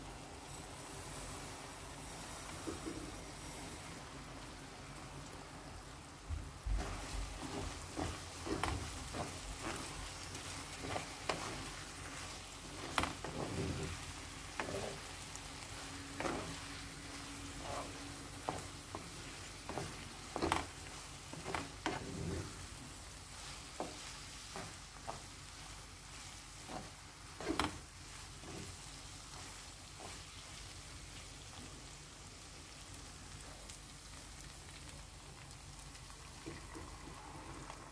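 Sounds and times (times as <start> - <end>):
sauce sizzling in a pot: 0.0 - 37.9
wooden spoon scraping a pot: 6.7 - 30.6.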